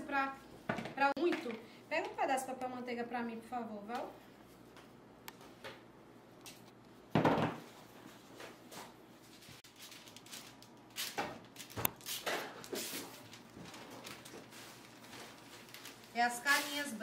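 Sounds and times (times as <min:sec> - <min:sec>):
parchment paper rustling: 0:08.0 - 0:17.0.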